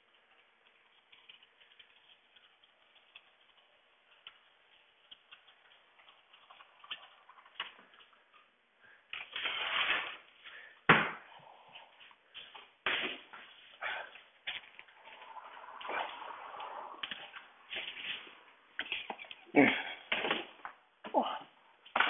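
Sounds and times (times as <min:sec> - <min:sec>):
clicks and ticks of hand work: 0:00.3 - 0:08.4
rustling scrape: 0:09.3 - 0:10.4, 0:14.5 - 0:19.2.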